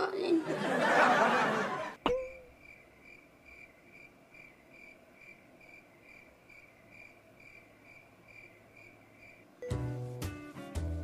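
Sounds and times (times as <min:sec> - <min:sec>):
cricket chirping: 0:02.1 - 0:09.6.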